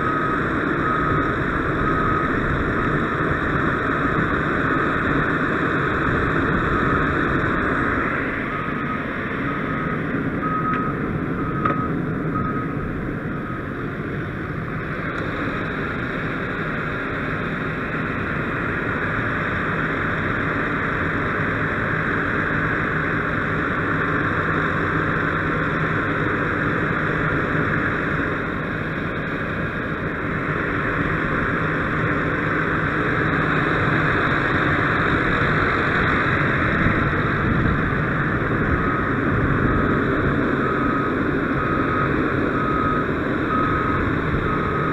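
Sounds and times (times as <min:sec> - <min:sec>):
diesel engine running: 0:00.0 - 0:44.9
faint beeps: 0:06.6 - 0:13.7, 0:40.6 - 0:44.9.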